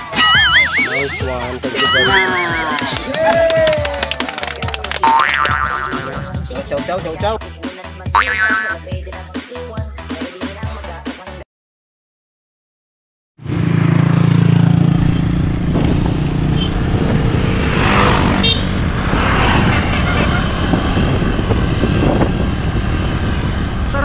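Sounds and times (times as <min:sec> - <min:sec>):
road noise: 0:00.0 - 0:08.9, 0:13.4 - 0:24.0
vehicle engine humming: 0:00.0 - 0:09.2, 0:13.4 - 0:24.0
music: 0:00.0 - 0:11.4
wind on microphone: 0:15.5 - 0:24.0.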